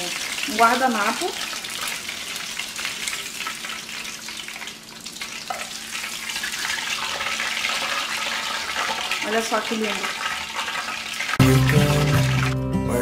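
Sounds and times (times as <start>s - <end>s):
fish frying in oil: 0.0s - 12.5s.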